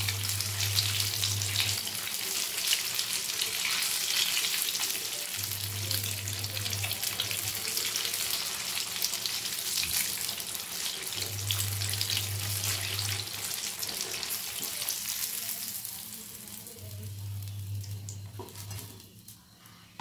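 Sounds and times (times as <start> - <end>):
chicken deep-frying in oil: 0.0 - 19.6.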